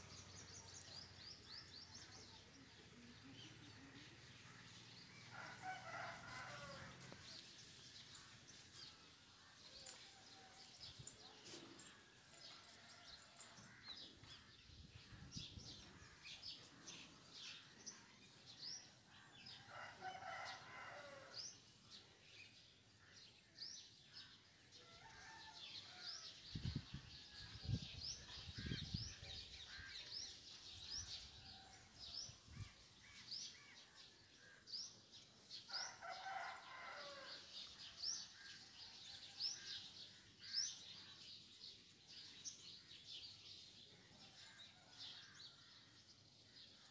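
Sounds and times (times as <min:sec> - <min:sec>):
rooster crowing: 0:05.5 - 0:07.2.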